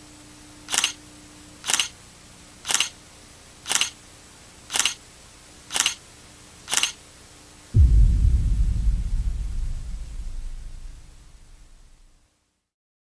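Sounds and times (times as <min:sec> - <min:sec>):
faint hiss and low hum: 0:00.0 - 0:12.7
camera shutter clicks: 0:00.7 - 0:01.0, 0:01.6 - 0:01.9, 0:02.7 - 0:02.9, 0:03.7 - 0:04.0, 0:04.7 - 0:05.0, 0:05.7 - 0:06.0, 0:06.7 - 0:07.0.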